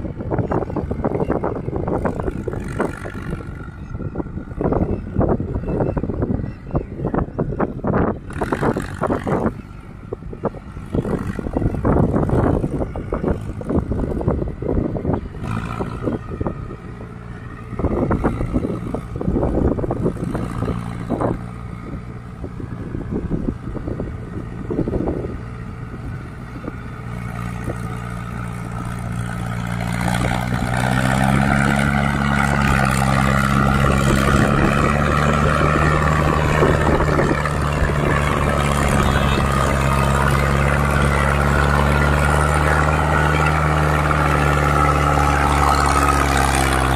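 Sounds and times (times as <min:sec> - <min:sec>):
tractor diesel engine under load: 0:00.0 - 0:46.9.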